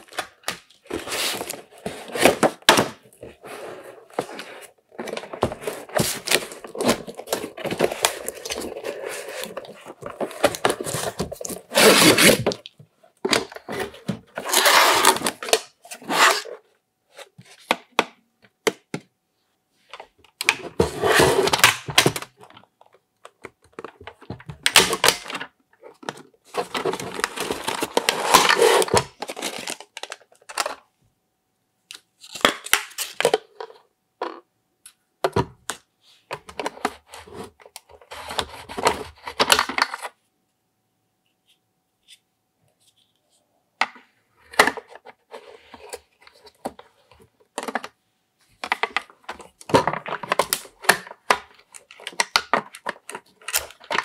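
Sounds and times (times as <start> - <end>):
cardboard and packaging rustling: 0.0 - 17.7, 20.4 - 30.8, 44.4 - 54.0.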